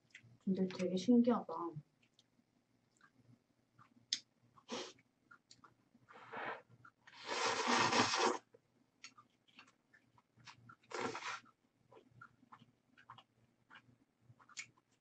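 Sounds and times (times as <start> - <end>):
wet mouth clicks: 3.8 - 5.8, 9.0 - 14.8
slurping noodles: 6.2 - 8.5, 10.8 - 11.5.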